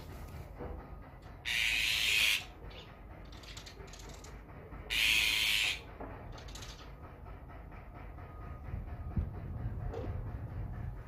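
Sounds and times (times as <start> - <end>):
harsh rasping bird calls: 1.4 - 2.5, 4.9 - 5.8.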